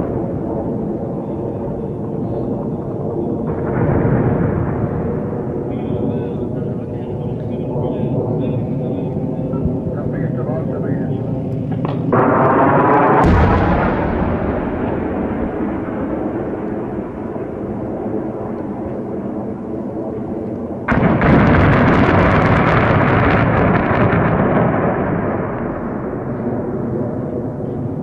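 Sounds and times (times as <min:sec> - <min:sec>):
crackle of small explosions: 0:00.0 - 0:07.5, 0:11.8 - 0:19.0, 0:20.5 - 0:28.0
heavy blast: 0:00.0 - 0:28.0
jet aircraft roaring: 0:00.0 - 0:28.0.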